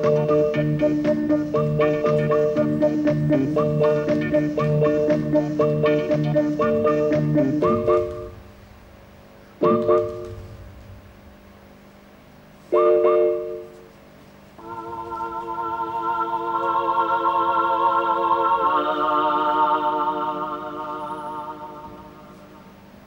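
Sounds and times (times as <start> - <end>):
short loud dance music chords: 0.0 - 11.8
sustained wavering chord: 14.6 - 22.8.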